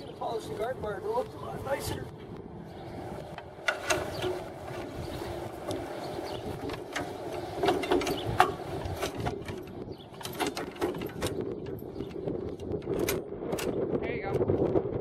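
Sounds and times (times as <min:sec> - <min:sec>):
metal clicks and scrapes: 0:03.3 - 0:14.6.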